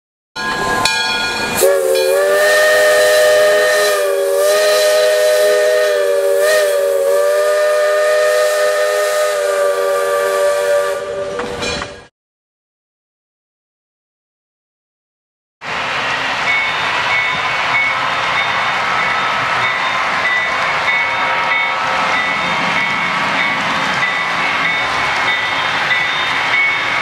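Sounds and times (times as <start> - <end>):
steam locomotive chime whistle: 0.4 - 12.1, 16.4 - 27.0
steam hissing: 1.4 - 11.6.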